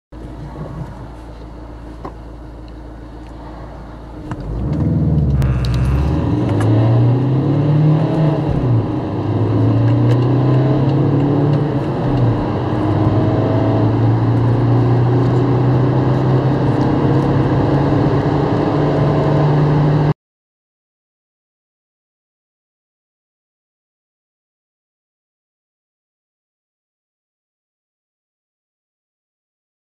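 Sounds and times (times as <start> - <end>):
car engine idling and accelerating: 0.2 - 20.1.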